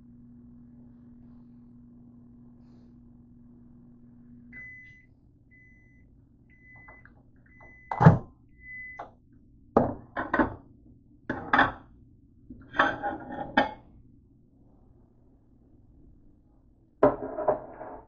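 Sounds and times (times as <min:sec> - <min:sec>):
microwave oven humming: 0:00.0 - 0:17.1
short high beeps: 0:04.6 - 0:08.0.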